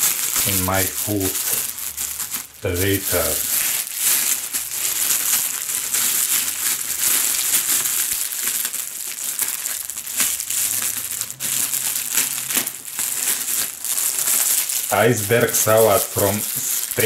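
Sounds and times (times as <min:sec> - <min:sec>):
cellophane crinkling: 0:00.0 - 0:17.0.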